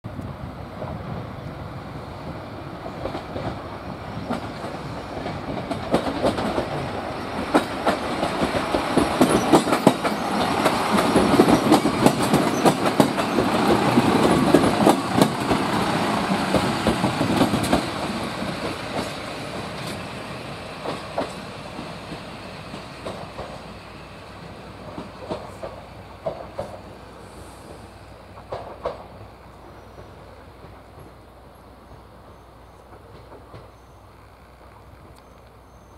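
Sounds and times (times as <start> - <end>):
diesel railcar engine: 0.1 - 35.9
wheels clacking over rail joints: 2.8 - 27.0, 27.7 - 29.2.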